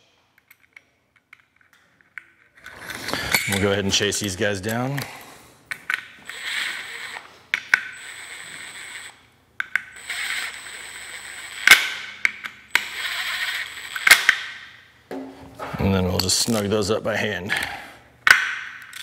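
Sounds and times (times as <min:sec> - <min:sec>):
impact driver spinning bolts: 0:05.8 - 0:14.6.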